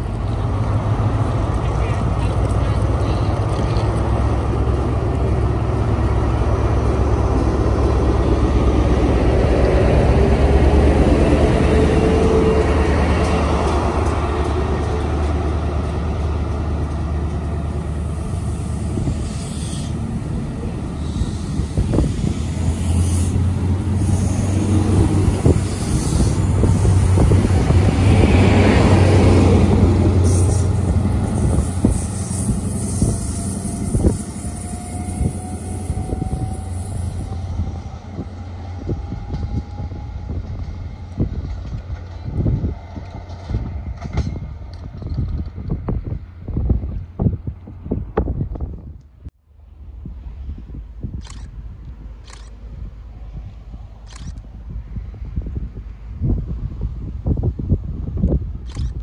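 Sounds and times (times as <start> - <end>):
diesel train engine droning: 0.0 - 58.6
train wheels clicking over rail joints: 11.8 - 20.1, 39.0 - 46.1.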